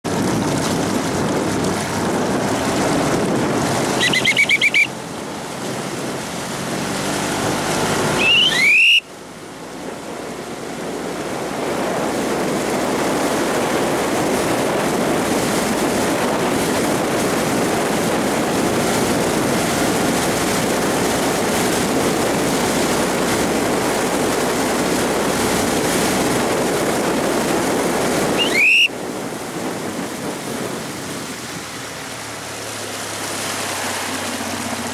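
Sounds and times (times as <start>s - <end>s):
paddle blades splashing: 0.0s - 34.9s
rushing water: 0.0s - 34.9s
wind noise: 0.0s - 34.9s
short rising squeaks: 3.9s - 4.9s, 8.1s - 9.0s, 28.4s - 28.9s.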